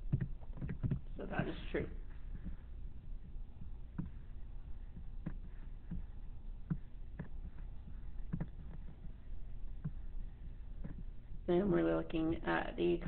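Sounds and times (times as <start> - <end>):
low hum: 0.0 - 13.0
computer mouse clicks: 0.1 - 1.1, 3.2 - 11.2.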